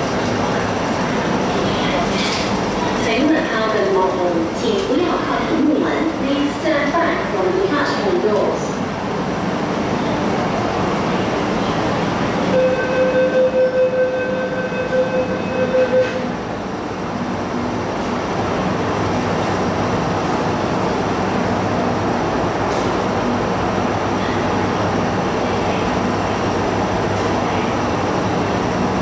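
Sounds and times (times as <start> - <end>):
train running equipment noise: 0.0 - 29.0
pulsing electronic warning beep: 12.5 - 16.2.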